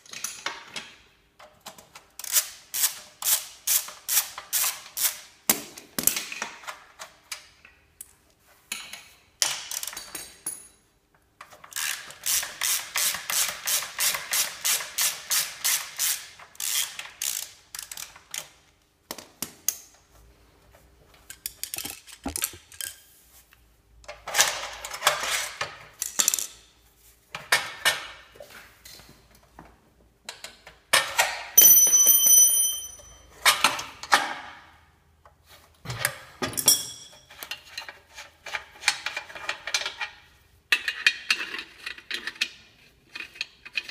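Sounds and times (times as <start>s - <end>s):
ratchet wrench clicking: 14.6s - 18.5s
metallic ringing: 31.6s - 33.2s.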